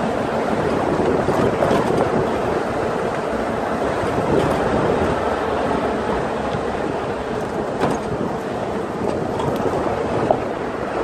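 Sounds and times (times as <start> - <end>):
jeep engine and road rumble: 0.0 - 11.0
wind noise on microphone: 0.0 - 11.0
jeep jolting knocks: 7.3 - 8.4.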